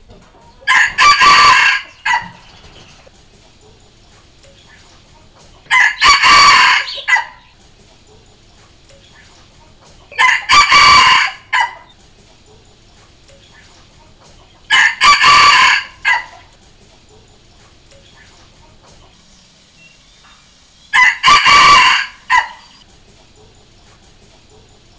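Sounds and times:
rooster crowing: 0.6s - 2.5s, 5.7s - 7.5s, 10.1s - 11.9s, 14.7s - 16.5s, 20.9s - 22.8s.

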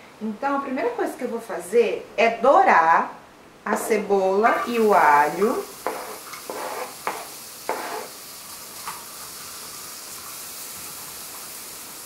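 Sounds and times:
onion and garlic sizzling: 3.9s - 12.0s
spatula scraping pan: 4.6s - 8.2s.

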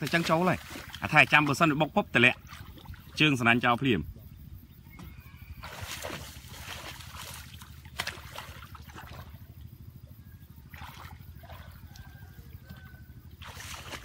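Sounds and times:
water sloshing and splashing: 0.0s - 14.0s.

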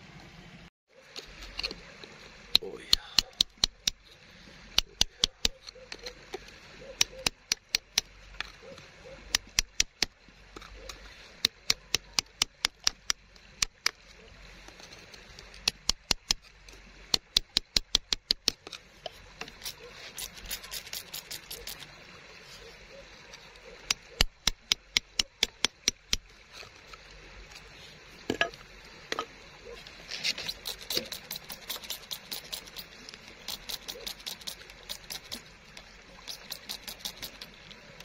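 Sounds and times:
tool tapping on rock: 2.5s - 4.0s, 4.7s - 6.4s, 7.0s - 14.0s, 15.4s - 16.5s, 17.1s - 18.8s, 23.8s - 26.3s, 28.3s - 29.3s.

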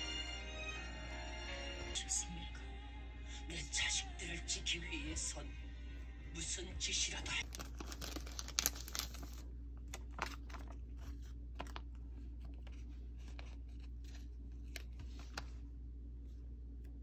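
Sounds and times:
sticker sheet crinkling: 7.4s - 15.6s.

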